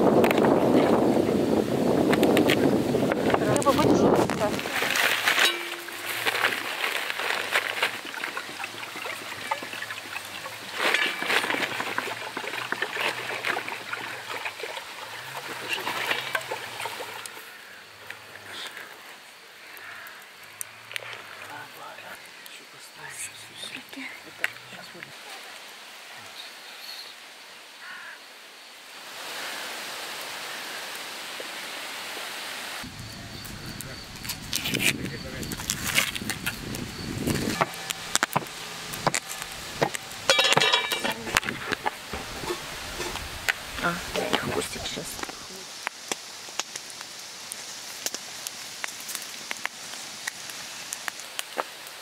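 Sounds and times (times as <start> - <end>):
water and fire hissing: 0.0 - 52.0
newspaper rustling and crinkling: 2.2 - 17.3, 34.2 - 46.0.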